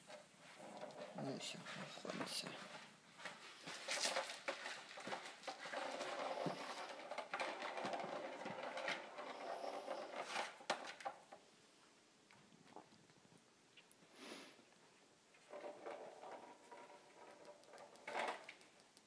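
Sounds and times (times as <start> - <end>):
kitten paws tapping on tiles: 16.8 - 19.0.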